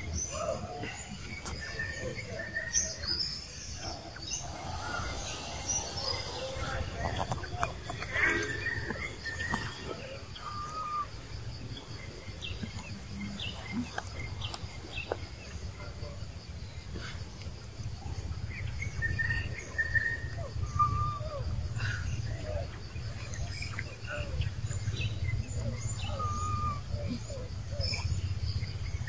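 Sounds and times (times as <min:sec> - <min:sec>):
low steady rumble: 0:03.3 - 0:10.4
bird chirps and whistled calls: 0:03.8 - 0:11.1, 0:25.8 - 0:28.0.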